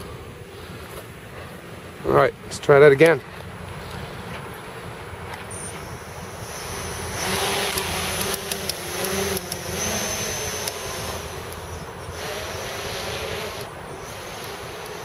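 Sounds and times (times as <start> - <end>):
quadcopter motors whining: 5.3 - 15.0.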